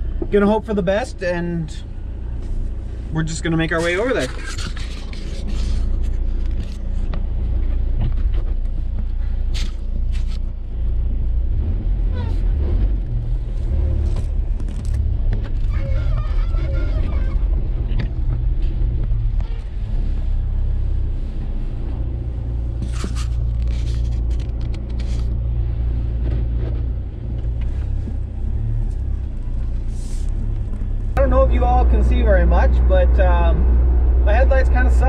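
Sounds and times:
engine low rumble: 0.0s - 35.0s.

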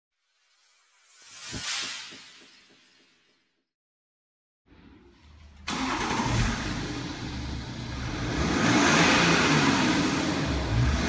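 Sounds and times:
diesel engine starting and running: 4.7s - 11.0s.

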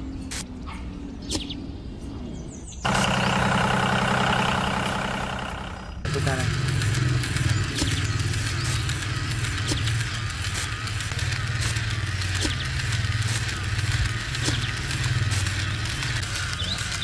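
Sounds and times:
conveyor belt clicking: 2.9s - 17.0s
electric motor humming: 2.9s - 17.0s.

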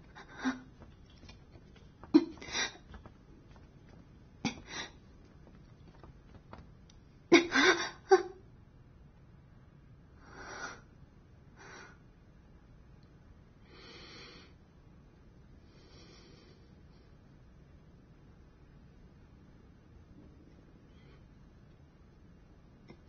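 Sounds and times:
person breathing heavily: 0.0s - 0.9s, 2.1s - 3.6s, 4.5s - 5.0s.

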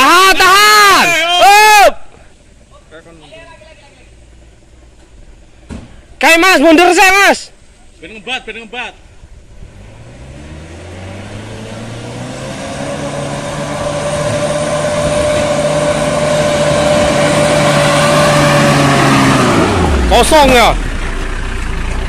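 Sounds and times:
pickup engine climbing hill: 9.0s - 22.0s.

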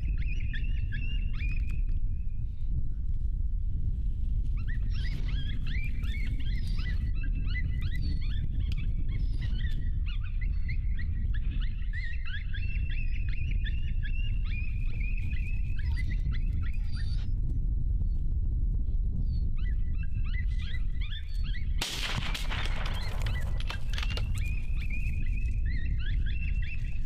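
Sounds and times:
coyotes yipping and howling: 0.0s - 1.9s, 4.5s - 17.5s, 19.2s - 27.0s
low rumble: 21.8s - 25.7s.

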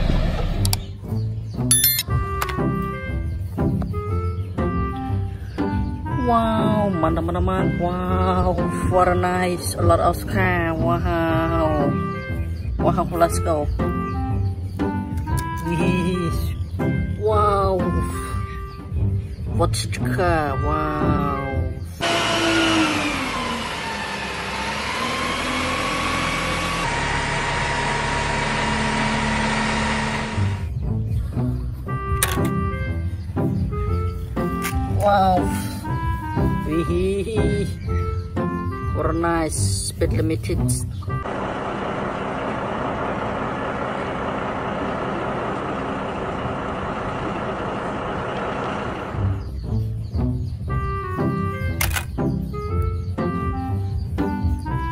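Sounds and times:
diesel truck engine running: 0.0s - 54.9s
low throb: 19.0s - 32.0s
truck diesel engine running: 20.5s - 31.1s, 40.8s - 54.9s.

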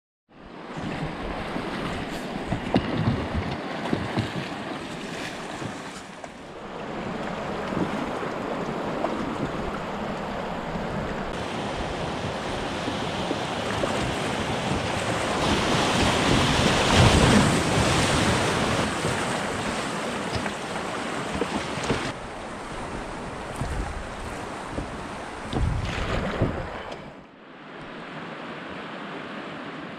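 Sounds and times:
river water rushing and splashing: 0.4s - 29.9s
wind buffeting microphone: 6.6s - 27.2s.

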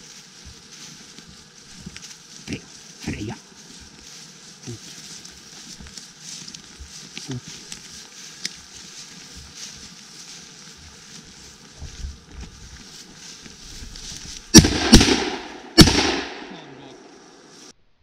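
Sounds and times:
shotgun shots echoing: 14.5s - 16.7s.

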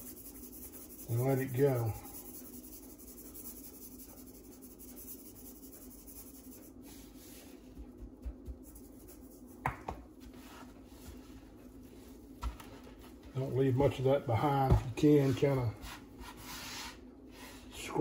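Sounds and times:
dry sprinkling and rubbing: 0.0s - 13.5s.

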